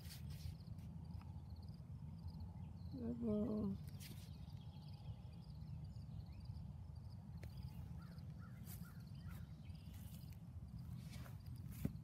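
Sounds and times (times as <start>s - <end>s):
rustles: 0.0s - 1.4s, 3.6s - 4.7s, 7.4s - 12.0s
faint high chirping: 0.2s - 12.0s
short bird calls: 7.5s - 10.3s.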